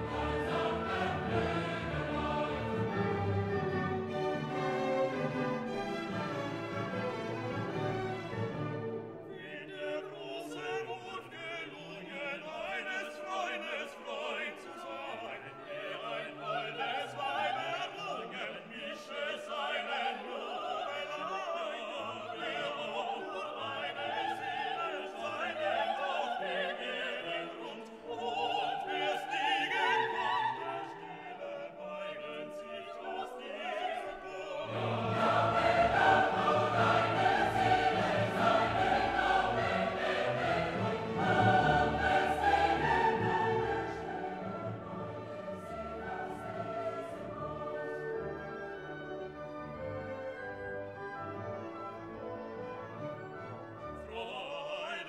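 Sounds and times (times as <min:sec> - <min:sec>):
orchestra playing: 0:00.0 - 0:09.9, 0:34.2 - 0:54.5
operatic singing: 0:00.0 - 0:48.9, 0:53.9 - 0:55.0.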